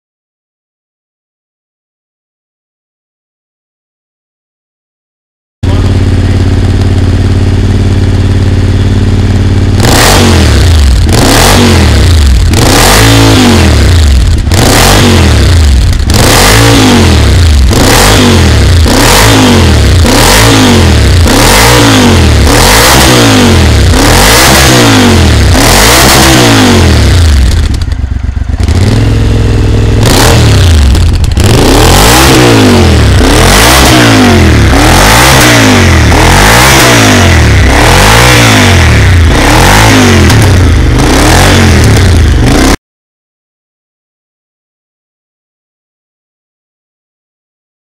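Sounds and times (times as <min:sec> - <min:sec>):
motorcycle engine revving: 0:05.6 - 0:42.8.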